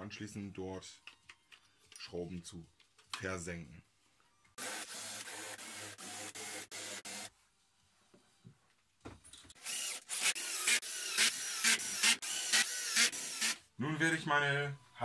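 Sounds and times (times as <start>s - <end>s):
cordless drill running in bursts: 4.6s - 7.3s, 9.6s - 13.6s.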